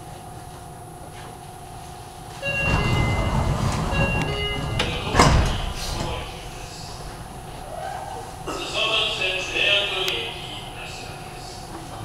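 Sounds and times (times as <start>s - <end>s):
train car low hum: 0.0s - 12.0s
train doors sliding with air rush: 1.9s - 10.2s.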